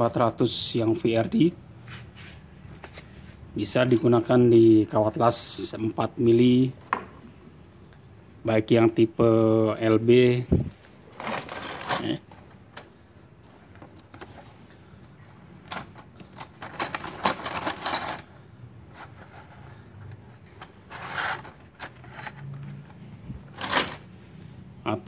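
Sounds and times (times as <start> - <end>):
box and plastic wrap rustling: 10.7 - 12.6, 13.4 - 24.1.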